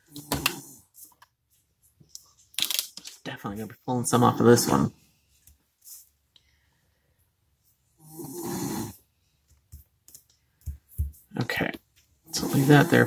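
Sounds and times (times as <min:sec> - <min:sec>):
man snoring: 0:08.0 - 0:09.0, 0:12.3 - 0:13.0
paper rustling and tapping: 0:09.5 - 0:11.3.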